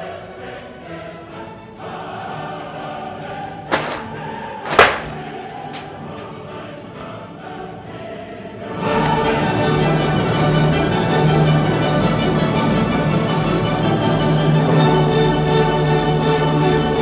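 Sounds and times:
choral singing: 0:00.0 - 0:17.0
sharp knocks: 0:03.7 - 0:06.1.

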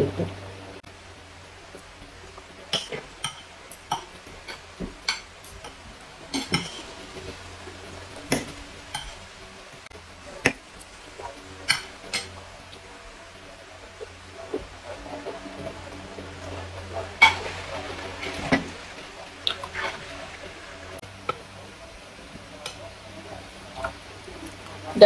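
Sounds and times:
cutlery clinking on plates: 0:02.7 - 0:06.9.

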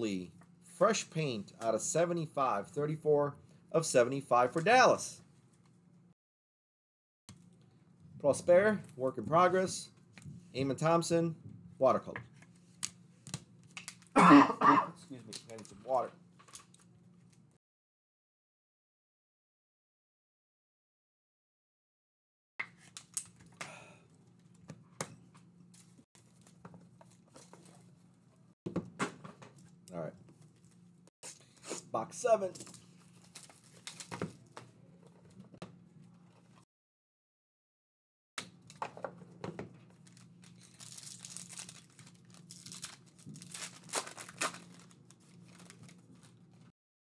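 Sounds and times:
wrap ripping: 0:40.6 - 0:44.9.

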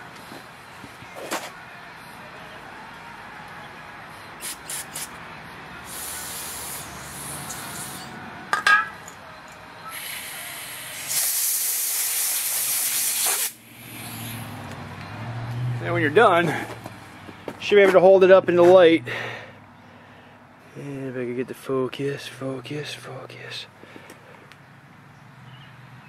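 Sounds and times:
pressurized spray hissing: 0:04.4 - 0:05.1, 0:05.9 - 0:08.1, 0:10.0 - 0:14.4.

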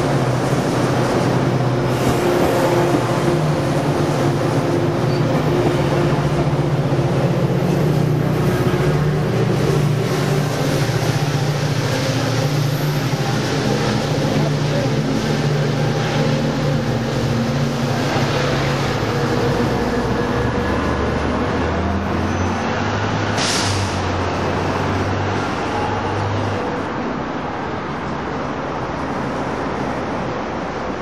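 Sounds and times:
diesel locomotive engine drone: 0:00.0 - 0:31.0
freeway traffic noise: 0:00.0 - 0:31.0
brief hiss: 0:23.4 - 0:24.0.

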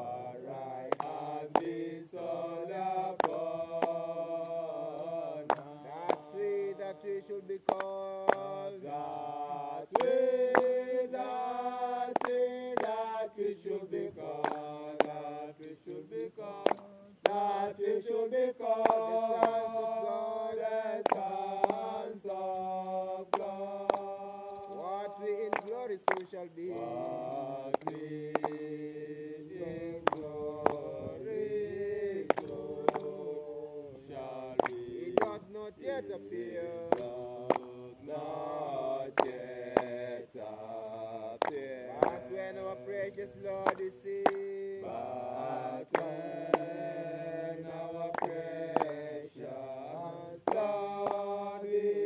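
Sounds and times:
voices chanting a slow hymn: 0:00.0 - 0:52.0
sharp clicks: 0:21.1 - 0:28.7, 0:43.7 - 0:45.0.

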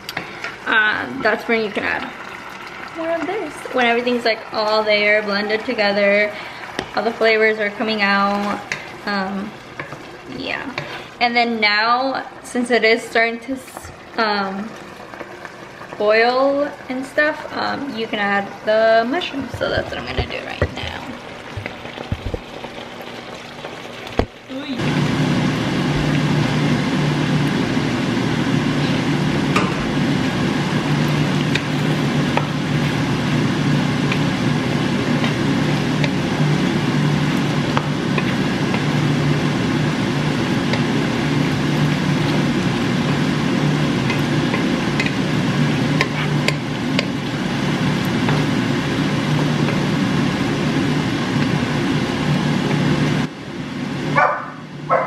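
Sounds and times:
sauce bubbling and sizzling: 0:00.0 - 0:54.9
wooden spoon scraping a pan: 0:10.7 - 0:11.1, 0:45.8 - 0:48.6
steady low hum: 0:24.5 - 0:55.0.

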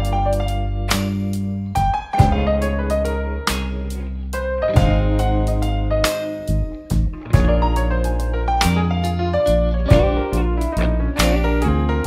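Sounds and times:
plucked guitar-like music: 0:00.0 - 0:12.0.

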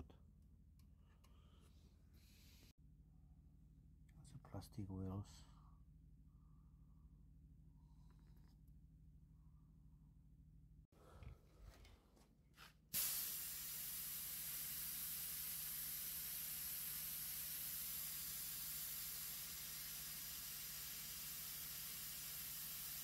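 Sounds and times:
compressed air hissing: 0:13.0 - 0:23.0.

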